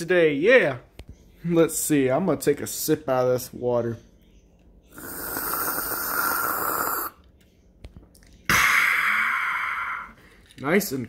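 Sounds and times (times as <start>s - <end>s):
slurping through a straw: 4.9s - 7.2s.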